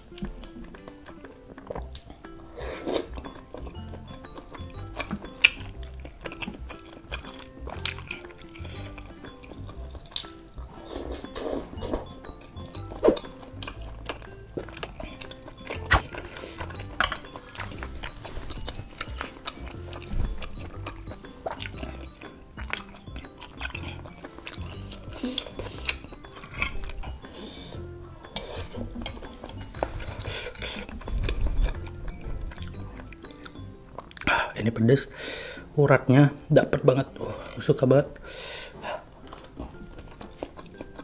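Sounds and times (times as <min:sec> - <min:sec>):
chewing: 0:00.0 - 0:34.4, 0:37.1 - 0:41.0
background music: 0:00.0 - 0:41.0
cutlery clinking on ceramic bowl: 0:11.2 - 0:24.7.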